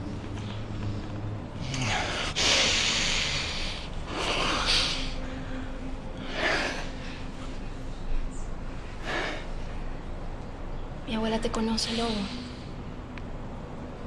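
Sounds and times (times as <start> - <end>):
person breathing heavily: 0.8 - 8.3, 8.9 - 9.9.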